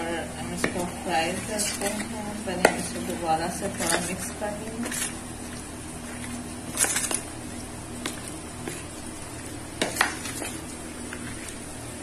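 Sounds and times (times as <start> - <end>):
steady low hum: 0.0 - 12.0
spoon stirring in plastic bowl: 0.5 - 11.7
spoon knocking and scraping bowl: 9.8 - 10.6.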